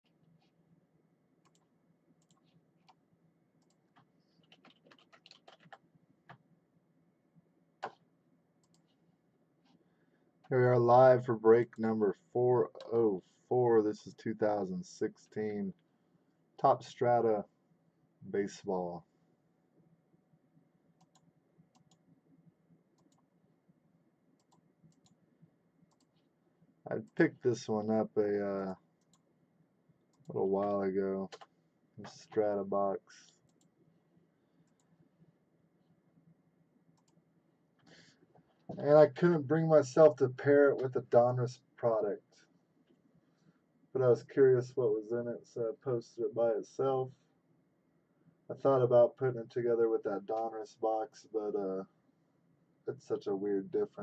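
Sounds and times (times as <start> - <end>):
faint sharp clicks: 37.0 - 37.2.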